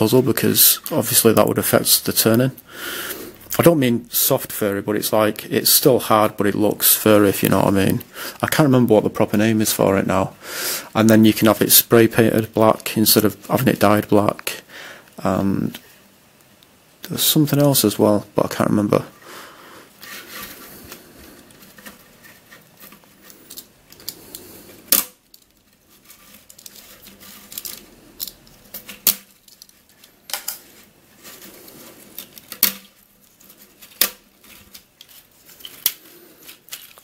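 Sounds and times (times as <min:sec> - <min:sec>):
plastic struts snapping: 0:24.9 - 0:25.5, 0:27.5 - 0:30.6, 0:32.2 - 0:32.9.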